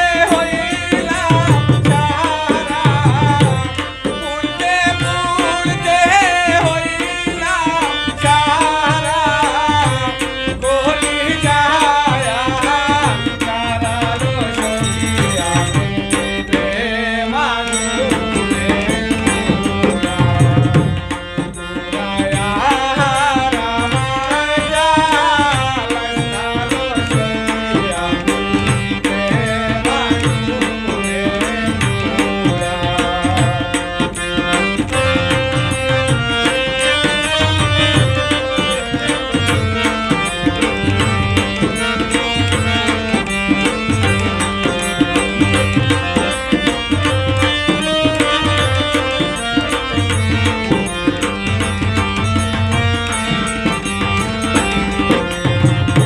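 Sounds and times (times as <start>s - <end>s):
hand drum beat: 0.0s - 10.2s, 25.4s - 56.0s
harmonium chords: 0.0s - 56.0s
man singing: 0.0s - 56.0s.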